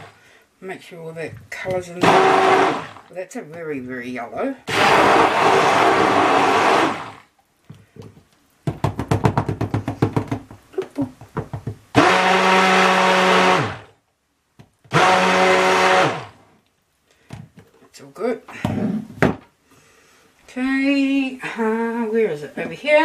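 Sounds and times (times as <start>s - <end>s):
stick blender motor humming: 2.0s - 3.1s, 4.7s - 7.2s, 11.9s - 13.9s, 14.9s - 16.4s.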